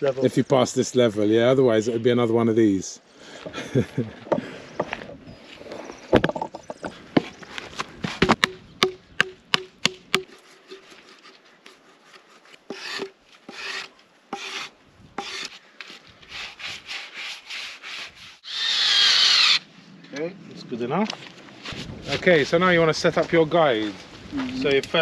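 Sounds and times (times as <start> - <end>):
sharp wooden knocks: 6.1 - 7.3, 8.0 - 10.4
wood scraping on wood: 10.2 - 18.4.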